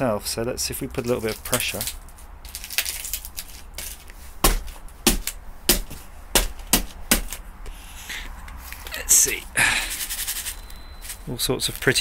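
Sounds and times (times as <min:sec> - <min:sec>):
broken glass cracking underfoot: 0:01.2 - 0:04.7.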